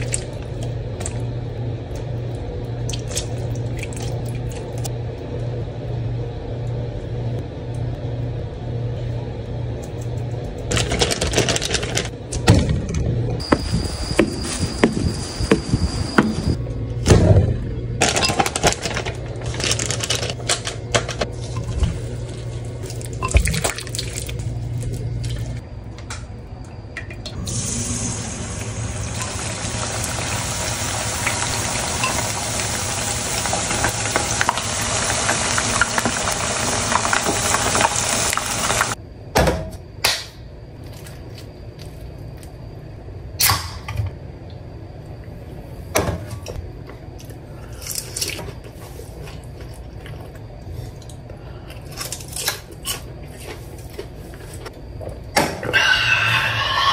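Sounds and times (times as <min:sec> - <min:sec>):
chicken deep-frying in oil: 0:27.3 - 0:39.0, 0:55.7 - 0:56.9.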